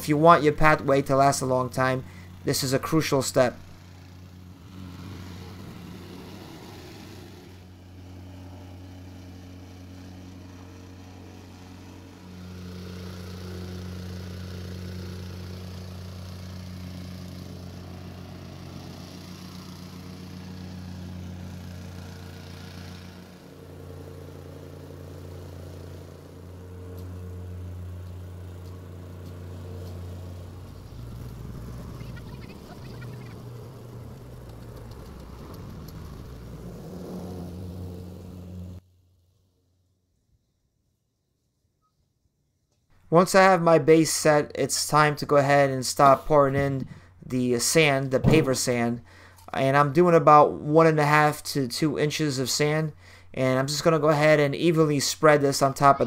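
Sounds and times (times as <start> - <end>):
plate compactor engine running: 2.0 - 2.5, 3.6 - 38.8.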